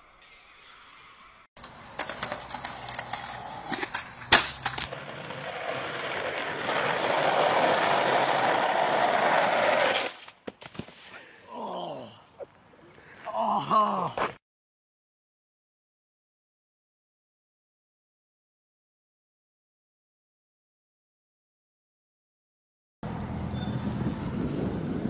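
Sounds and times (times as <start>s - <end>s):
skateboard clacking: 1.6s - 10.1s
skateboard wheels rolling on asphalt: 1.6s - 11.1s, 23.1s - 25.0s
person shouting: 13.3s - 14.3s.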